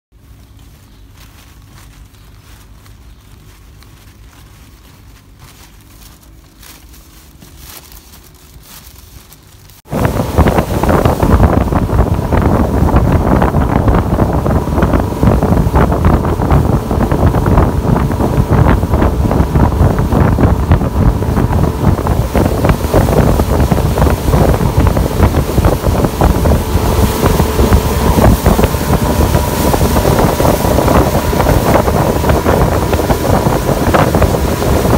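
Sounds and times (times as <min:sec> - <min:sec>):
faint low hum: 0:00.2 - 0:34.9
water rushing along hull: 0:03.6 - 0:34.9
wind buffeting microphone: 0:09.8 - 0:34.9.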